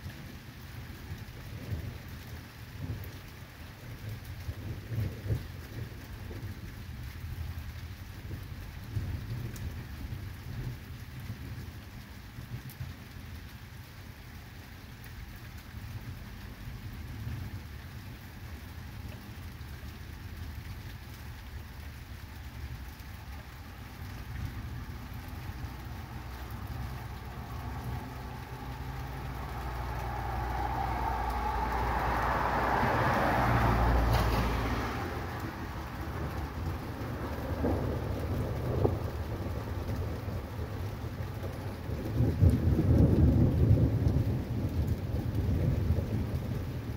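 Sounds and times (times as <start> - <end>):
rain falling: 0.0 - 46.9
thunder rumbling: 1.2 - 11.8, 22.8 - 46.9.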